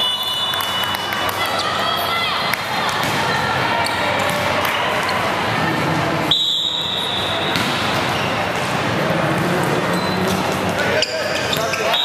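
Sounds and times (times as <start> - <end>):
referee's whistle: 0.0 - 1.0, 6.3 - 7.3, 11.7 - 12.0
echoing voices in hall: 0.0 - 12.0
volleyballs being hit: 2.5 - 5.1, 7.4 - 8.7.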